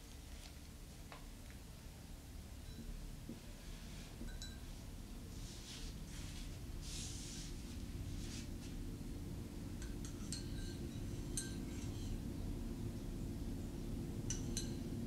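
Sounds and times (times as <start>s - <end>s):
steady low hum: 0.0s - 15.0s
spoon clinking against mug: 9.8s - 12.1s, 14.3s - 14.8s.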